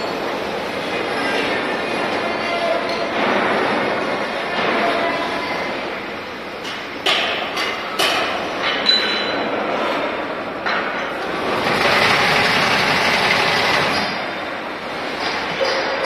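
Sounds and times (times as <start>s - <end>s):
braiding machines clattering: 10.8s - 16.0s.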